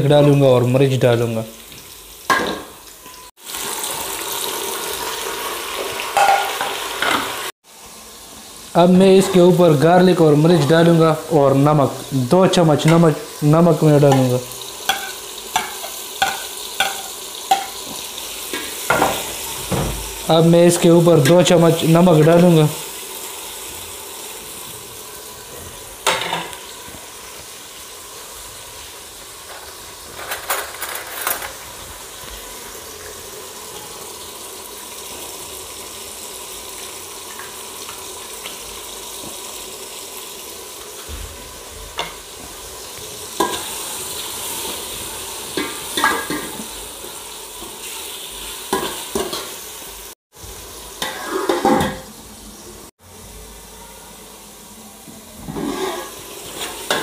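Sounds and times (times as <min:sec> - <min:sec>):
onion and tomato sizzling in oil: 0:00.0 - 0:57.0
metal ladle scraping pot: 0:55.4 - 0:57.0.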